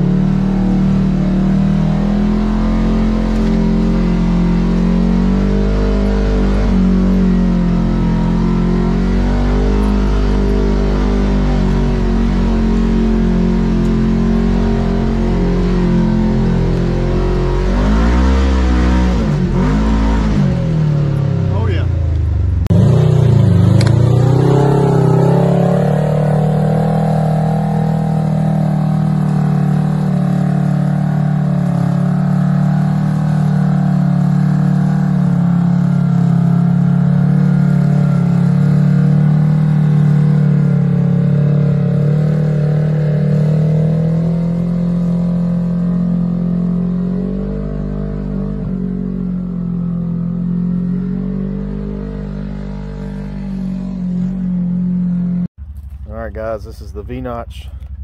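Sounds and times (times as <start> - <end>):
utility vehicle engine idling: 55.6 - 58.0.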